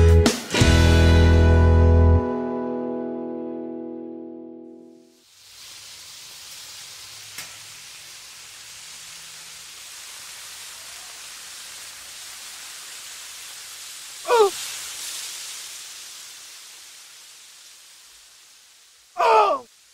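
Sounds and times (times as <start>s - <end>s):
bacon sizzling in a frying pan: 5.1s - 19.9s
voice-like cry: 14.2s - 14.6s, 19.2s - 19.7s.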